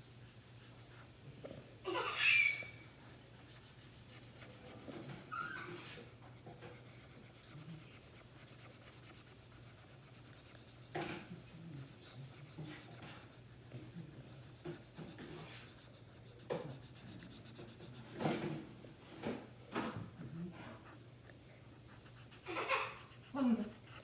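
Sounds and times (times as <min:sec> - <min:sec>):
marker scribbling on paper: 0:03.4 - 0:18.6, 0:21.7 - 0:24.0.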